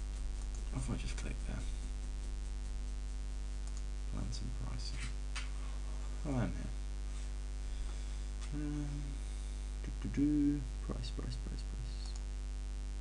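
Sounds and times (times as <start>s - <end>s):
electrical mains hum: 0.0s - 13.0s
computer mouse clicks: 0.4s - 0.7s, 3.6s - 3.9s
man humming: 8.4s - 12.2s.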